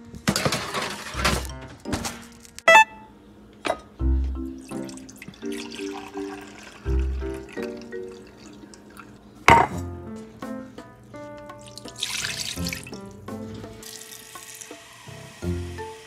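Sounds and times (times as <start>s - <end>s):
background music: 0.0s - 16.0s
liquid splashing into a wok: 11.7s - 13.0s.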